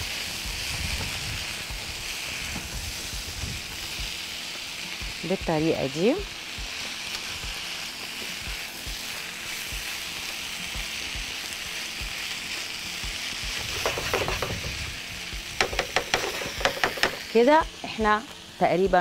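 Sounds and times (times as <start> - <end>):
food sizzling in a frying pan: 0.0 - 19.0
spatula tapping a pan: 13.5 - 14.8, 15.6 - 17.3.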